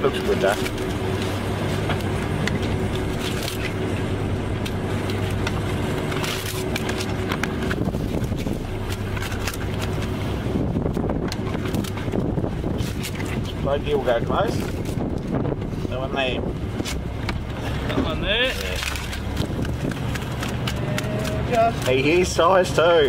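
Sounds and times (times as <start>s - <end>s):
boat engine humming: 0.0s - 23.0s.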